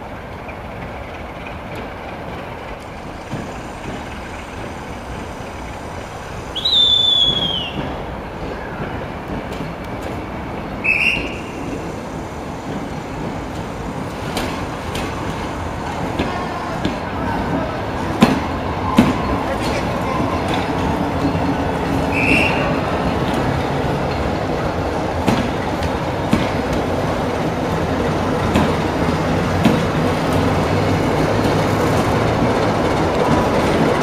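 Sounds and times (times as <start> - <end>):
train coach rumbling over tracks: 0.0 - 34.0
high wheel squeal: 3.3 - 9.0, 10.8 - 12.2, 22.0 - 23.0.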